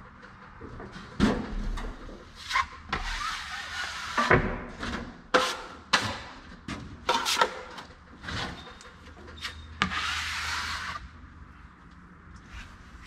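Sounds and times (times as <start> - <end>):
taping knife scraping compound: 5.3 - 6.2, 9.4 - 11.1.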